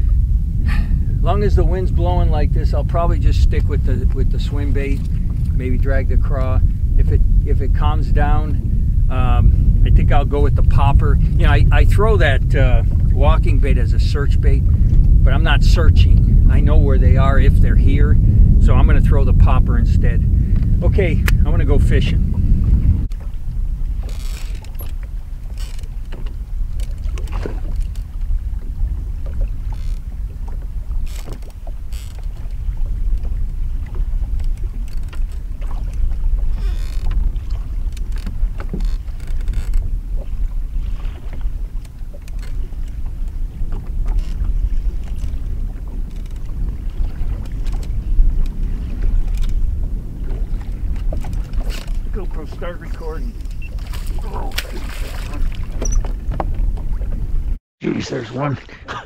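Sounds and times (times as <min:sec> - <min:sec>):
wind rumbling on microphone: 0:00.0 - 0:57.6
waves slapping boat hull: 0:00.0 - 0:59.0.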